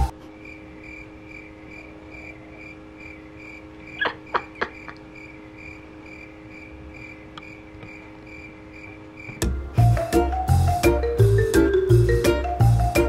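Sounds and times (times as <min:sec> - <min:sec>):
faint steady hum: 0:00.0 - 0:13.0
cricket chirping: 0:00.4 - 0:09.6.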